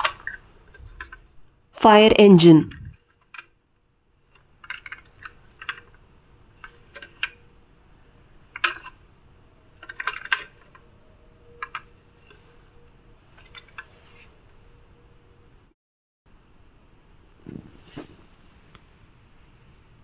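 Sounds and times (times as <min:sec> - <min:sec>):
plastic toy clicking and clacking: 0:04.3 - 0:07.4, 0:08.4 - 0:09.0, 0:09.8 - 0:10.8, 0:11.6 - 0:12.5.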